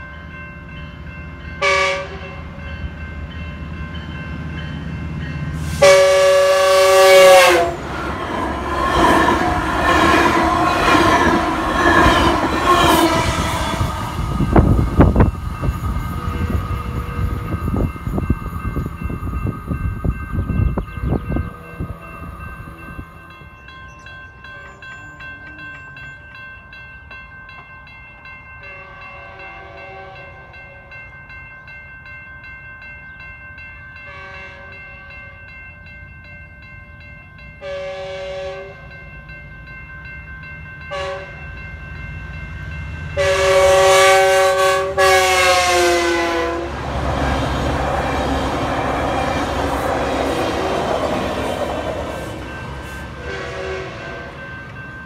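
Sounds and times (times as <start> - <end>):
crossing warning bell ringing: 0.0 - 55.0
loud train horn blast: 1.6 - 2.5, 5.6 - 7.9, 9.4 - 14.0, 28.7 - 30.6, 34.1 - 35.1, 37.6 - 38.9, 40.9 - 41.4, 43.2 - 47.0, 52.9 - 54.4
distant train horn blasts: 1.6 - 2.6, 5.5 - 8.2, 8.9 - 15.3, 28.7 - 31.0, 34.1 - 35.4, 37.6 - 39.0, 40.9 - 41.6, 43.2 - 54.5.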